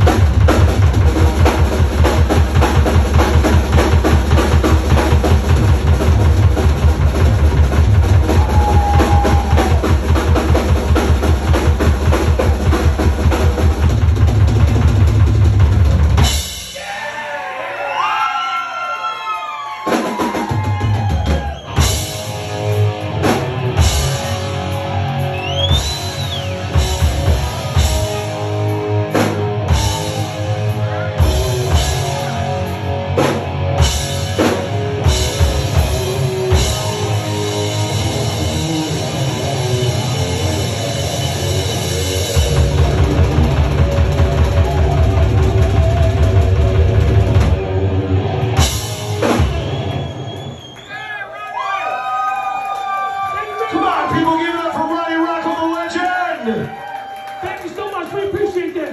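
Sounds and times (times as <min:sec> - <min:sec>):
fast bass drum pattern: 0:00.0 - 0:16.8, 0:29.1 - 0:30.4, 0:31.2 - 0:32.4, 0:33.2 - 0:47.7
live rock band playing: 0:00.0 - 0:16.8, 0:19.8 - 0:50.6.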